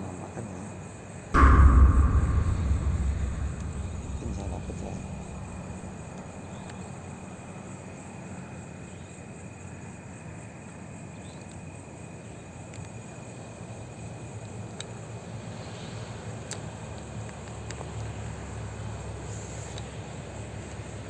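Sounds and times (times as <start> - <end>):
low rumble: 1.4 - 6.6.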